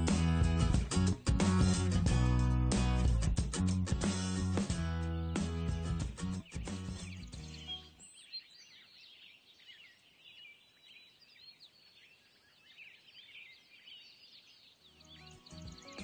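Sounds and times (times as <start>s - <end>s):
small birds chirping: 5.3s - 16.0s.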